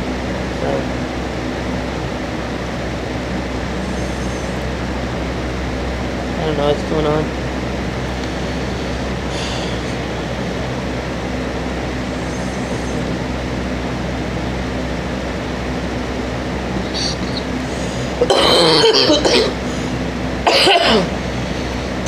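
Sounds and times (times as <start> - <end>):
mechanical fan hum: 0.0 - 22.0
woman coughing: 18.2 - 19.7, 20.4 - 21.2.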